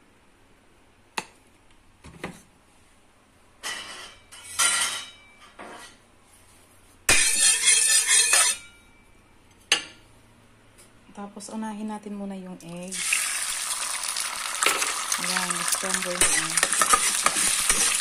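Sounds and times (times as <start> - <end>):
pan rattling: 14.6 - 18.0
utensils clinking and clattering: 14.6 - 18.0.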